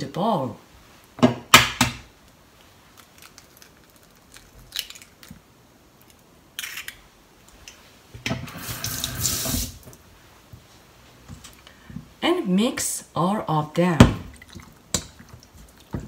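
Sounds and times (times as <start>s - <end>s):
eggshell crackle: 2.2s - 7.8s.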